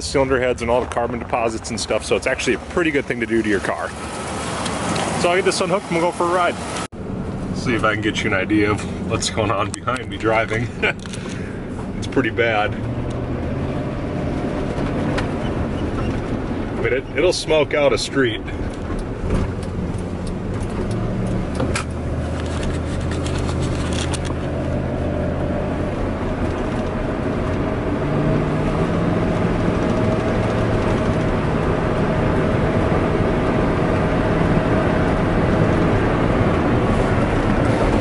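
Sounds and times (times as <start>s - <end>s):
truck engine running: 0.0s - 38.0s
tyre and road noise: 0.0s - 38.0s.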